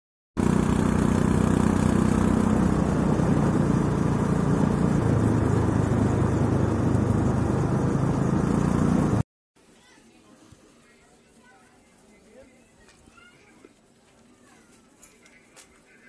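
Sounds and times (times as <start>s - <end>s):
road noise: 0.4s - 9.2s
vehicle engine running: 0.4s - 9.2s.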